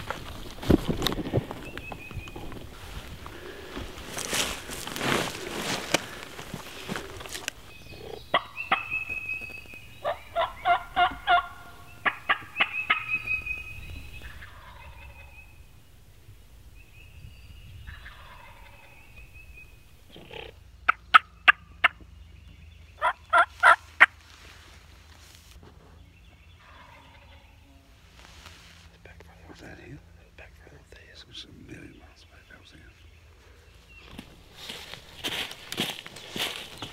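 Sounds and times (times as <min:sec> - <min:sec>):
wild turkey yelping: 0:07.9 - 0:09.4, 0:10.0 - 0:13.6, 0:14.2 - 0:15.4, 0:17.9 - 0:19.0, 0:20.1 - 0:22.0, 0:23.0 - 0:24.2.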